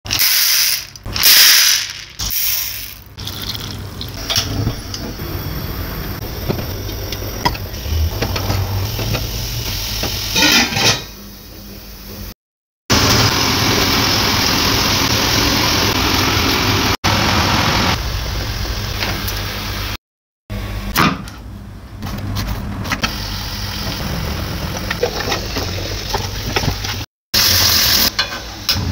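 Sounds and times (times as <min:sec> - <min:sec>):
meat sizzling in a pot: 0:12.9 - 0:18.8, 0:23.1 - 0:28.3.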